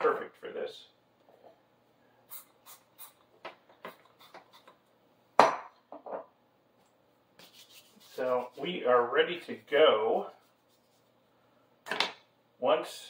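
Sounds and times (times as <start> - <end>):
sharp knock on countertop: 5.4 - 5.7.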